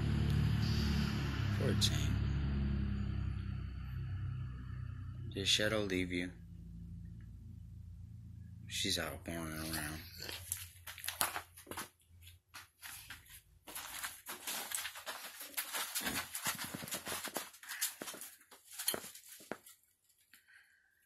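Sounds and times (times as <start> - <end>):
dog moving on plastic tarp: 13.7 - 19.5.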